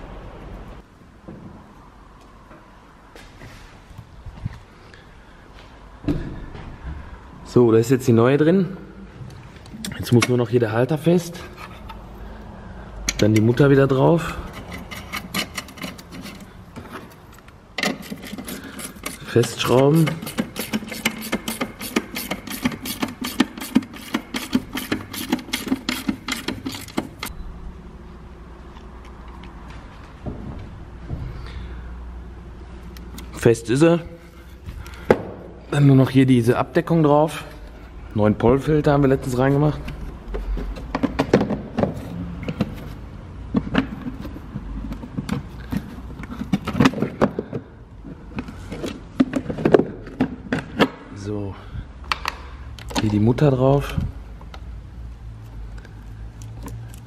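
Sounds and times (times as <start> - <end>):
hand ratchet clicking: 17.8 - 27.3
plastic clicking against plastic: 52.0 - 53.2.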